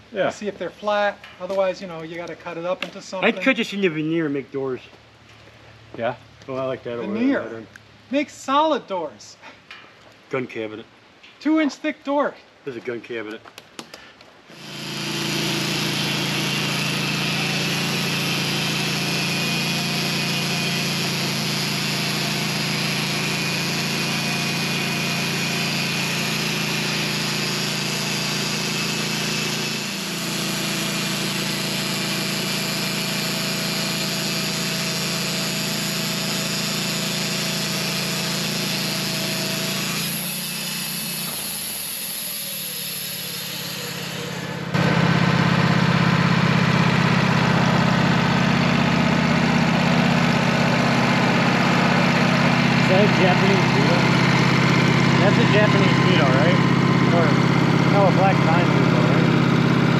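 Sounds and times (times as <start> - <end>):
engine hum: 14.4 - 59.9
saw blade hissing in wood: 14.5 - 44.8.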